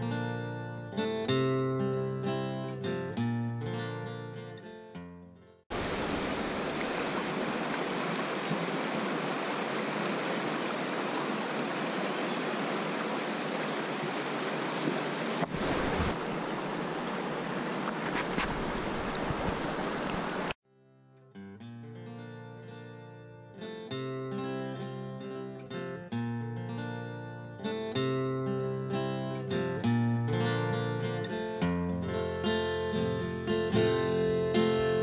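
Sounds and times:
acoustic guitar music: 0:00.0 - 0:05.6, 0:20.7 - 0:35.0
river rushing over stones: 0:05.7 - 0:20.6.

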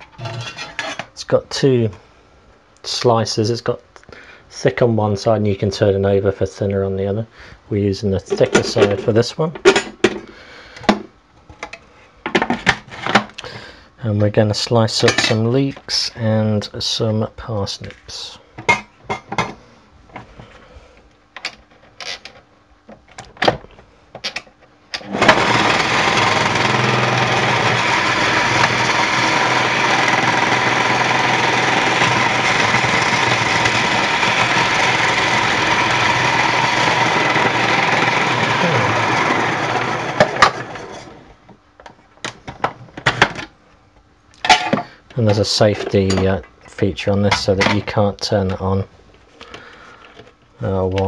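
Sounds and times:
food processor motor running: 0:25.0 - 0:41.2.

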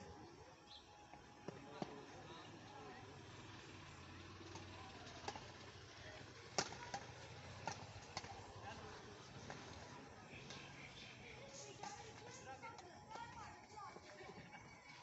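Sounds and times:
faint background noise: 0:00.0 - 0:15.0
rackets hitting shuttlecock: 0:04.5 - 0:05.5, 0:06.5 - 0:08.6.

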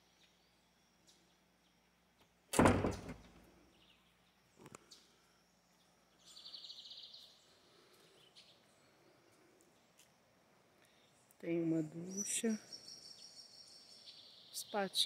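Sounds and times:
faint outdoor background: 0:00.0 - 0:15.0
sharp knock: 0:02.6 - 0:03.2.

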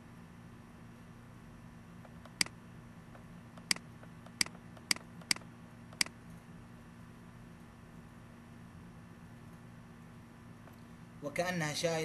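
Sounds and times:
faint steady hum: 0:00.0 - 0:12.0
computer mouse clicking: 0:02.0 - 0:02.5, 0:03.6 - 0:06.1.

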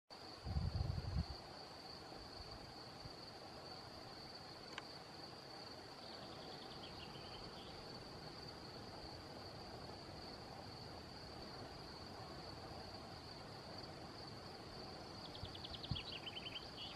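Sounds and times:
faint outdoor hiss: 0:00.1 - 0:16.9
high-pitched insect trill: 0:00.2 - 0:16.9
faint click: 0:04.6 - 0:04.9.

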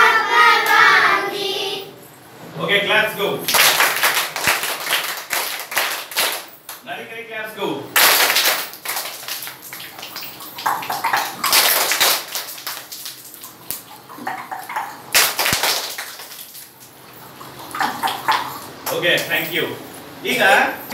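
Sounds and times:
children clapping: 0:03.5 - 0:06.8, 0:08.0 - 0:13.3, 0:15.1 - 0:16.7.

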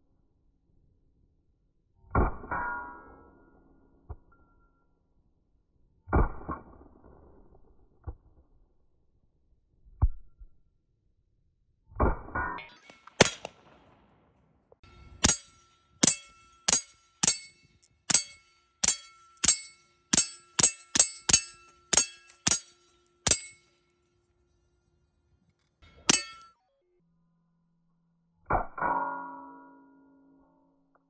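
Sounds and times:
pistol shots: 0:12.8 - 0:14.0
suppressed pistol shots: 0:12.9 - 0:14.0.

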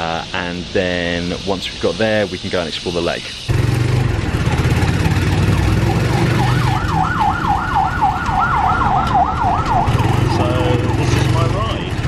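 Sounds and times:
motorcycle engine running: 0:03.5 - 0:06.9
fast wavering siren: 0:05.0 - 0:11.0.

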